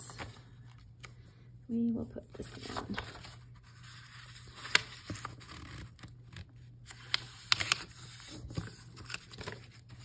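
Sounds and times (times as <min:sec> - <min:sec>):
paper pages rustling: 0:02.3 - 0:10.0.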